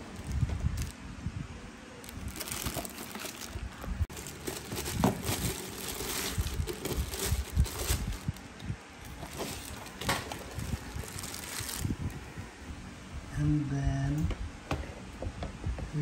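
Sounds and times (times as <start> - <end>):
plastic bag and cardboard rustling: 0.0 - 1.0, 2.0 - 12.3.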